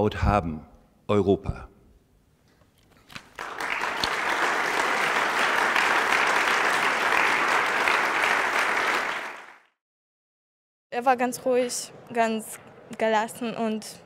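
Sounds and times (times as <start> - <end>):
audience applauding: 3.2 - 9.8.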